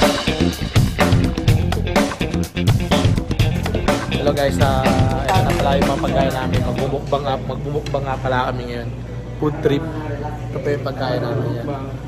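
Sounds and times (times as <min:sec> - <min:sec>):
guitar and bass music with beat: 0:00.0 - 0:07.0.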